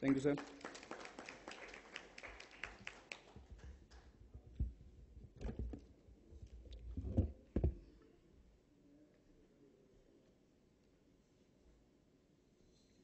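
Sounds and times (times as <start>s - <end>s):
hand clapping: 0.0s - 4.2s.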